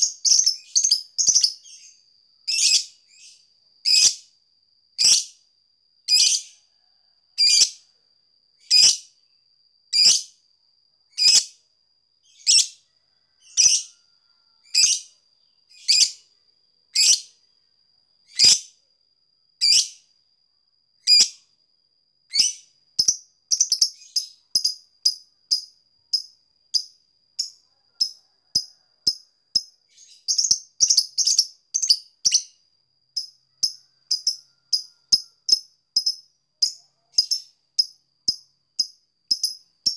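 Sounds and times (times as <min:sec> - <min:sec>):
lovebird chirping: 0:00.0 - 0:04.3, 0:05.0 - 0:05.4, 0:06.1 - 0:06.6, 0:07.4 - 0:07.8, 0:08.6 - 0:09.1, 0:09.9 - 0:10.3, 0:11.1 - 0:11.6, 0:12.2 - 0:12.8, 0:13.4 - 0:16.3, 0:16.9 - 0:17.4, 0:18.3 - 0:18.7, 0:22.3 - 0:39.9
faint steady high tone: 0:05.4 - 0:09.6, 0:11.6 - 0:39.9.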